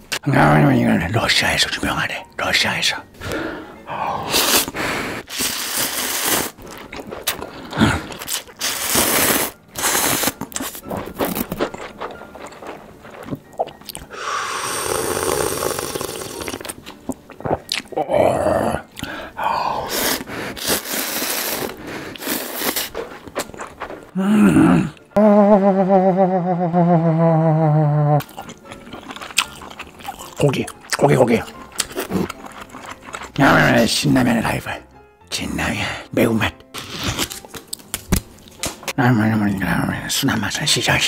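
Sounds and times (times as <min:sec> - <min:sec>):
slurping noodles: 0:04.0 - 0:16.8, 0:17.4 - 0:25.0, 0:27.6 - 0:33.8.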